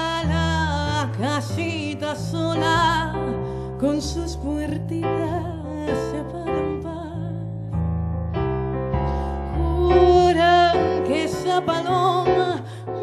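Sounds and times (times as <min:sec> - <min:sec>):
piano chords: 0:00.0 - 0:13.0
woman singing with vibrato: 0:09.5 - 0:13.0.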